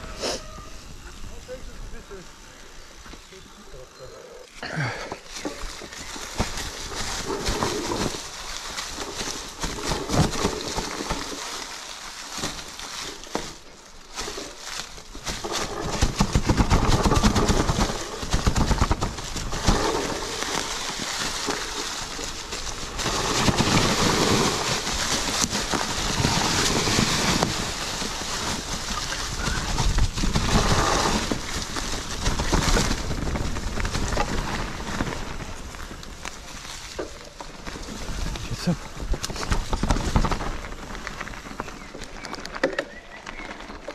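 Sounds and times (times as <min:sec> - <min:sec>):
bike tyres rattling over ground: 0:00.0 - 0:43.9
wind rushing over microphone: 0:22.2 - 0:36.6.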